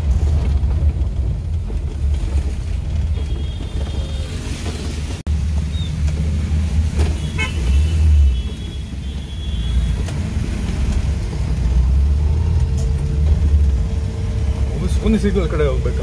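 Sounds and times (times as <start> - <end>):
car engine and road drone: 0.0 - 16.0
car horn toots: 7.1 - 10.1.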